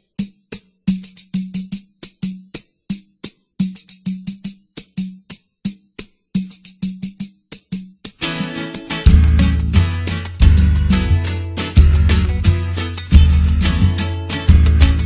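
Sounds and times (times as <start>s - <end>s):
samba hand-drum percussion: 0.0s - 15.0s.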